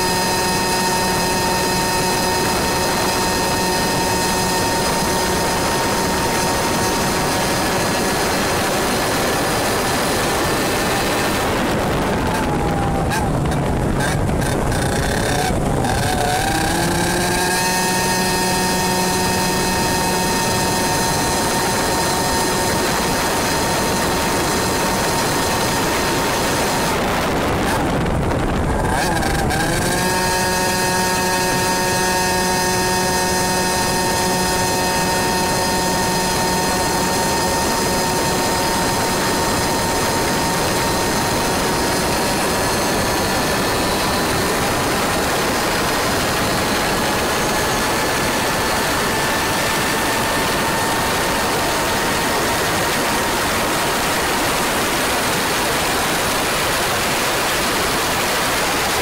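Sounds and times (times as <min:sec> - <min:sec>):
kart engine at high revs: 0:00.0 - 0:59.0
wind noise on microphone: 0:00.0 - 0:59.0.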